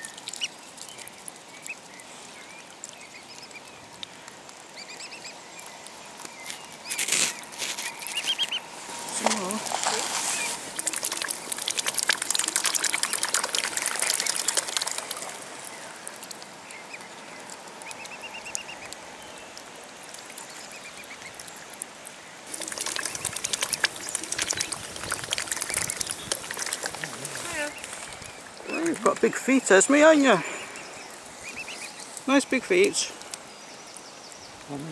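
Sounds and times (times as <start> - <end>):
wet clicking and slurping: 0.0 - 2.0, 6.2 - 19.0, 19.6 - 29.7.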